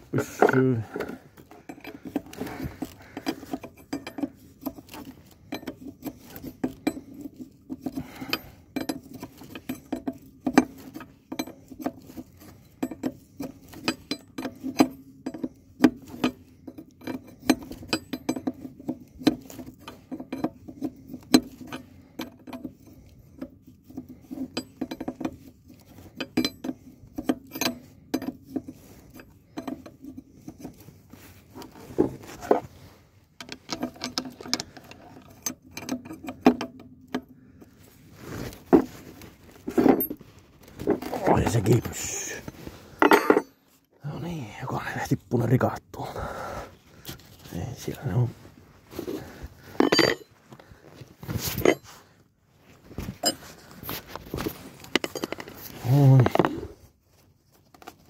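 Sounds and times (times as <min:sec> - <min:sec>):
hand tools clinking on metal: 0:00.1 - 0:22.8, 0:23.9 - 0:30.8, 0:40.8 - 0:43.6, 0:49.0 - 0:50.4, 0:51.4 - 0:52.0, 0:53.1 - 0:53.6, 0:54.8 - 0:56.6.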